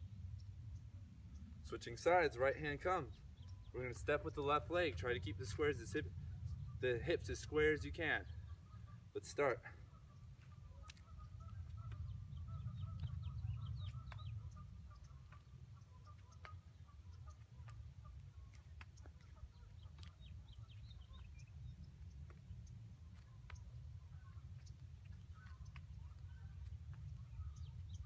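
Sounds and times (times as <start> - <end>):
birds calling and chirping: 0.0 - 28.0
steady low rumble: 0.0 - 28.0.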